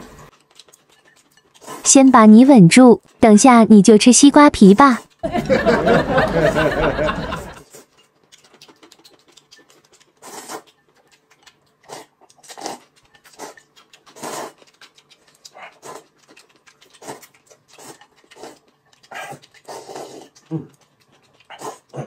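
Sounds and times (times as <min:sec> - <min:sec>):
person chewing: 0:00.0 - 0:01.8, 0:07.4 - 0:22.0
person slurping noodles: 0:01.6 - 0:01.9, 0:10.2 - 0:10.9, 0:11.8 - 0:14.6, 0:17.0 - 0:20.8.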